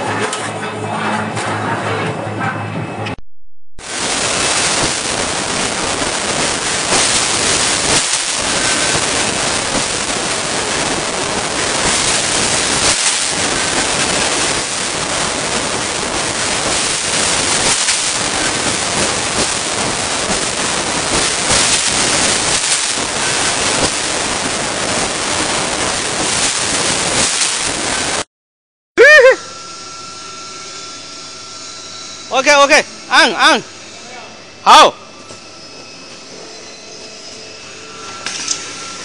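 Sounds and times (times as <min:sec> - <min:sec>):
fans and blowers rushing air: 0:03.9 - 0:28.2.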